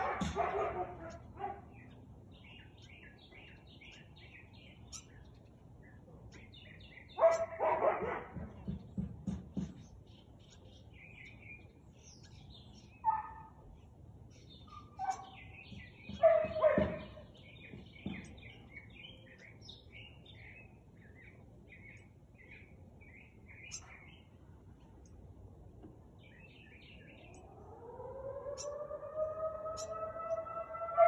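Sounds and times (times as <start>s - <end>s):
dog barking: 0.0s - 1.8s, 7.2s - 8.4s, 13.0s - 13.6s, 14.7s - 15.4s, 16.2s - 17.2s
small birds chirping: 0.0s - 31.0s.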